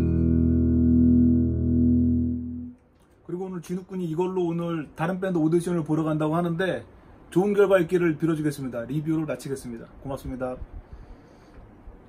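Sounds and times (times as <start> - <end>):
electric bass notes ringing: 0.0 - 2.8.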